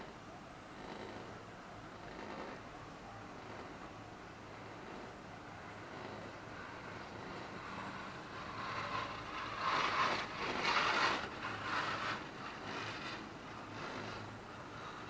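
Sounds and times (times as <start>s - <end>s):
chairlift low hum: 4.0s - 15.0s
rushing noise: 6.4s - 13.8s.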